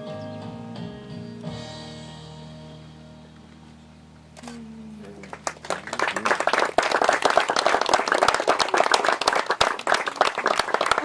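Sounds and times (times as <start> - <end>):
recorded song: 0.0 - 3.6
people clapping: 4.5 - 11.0.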